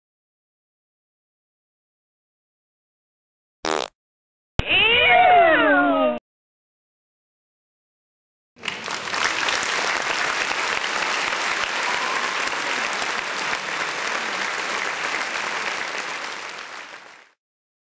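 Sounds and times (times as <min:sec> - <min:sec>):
crowd applause: 0:08.6 - 0:17.4.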